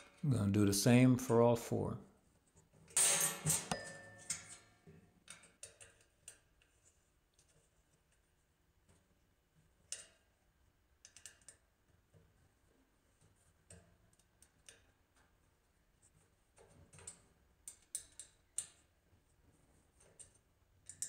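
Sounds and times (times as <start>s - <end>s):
ringing metallic clink: 3.0s - 4.7s.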